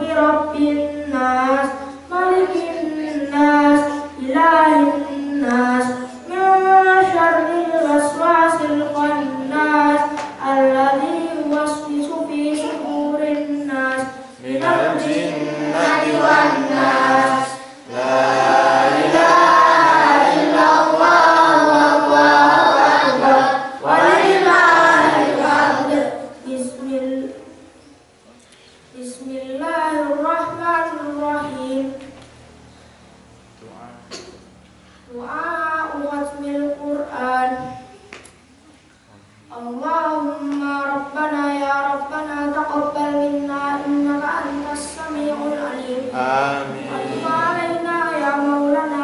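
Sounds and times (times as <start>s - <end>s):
boy chanting into microphone: 0.0s - 27.5s, 39.5s - 49.0s.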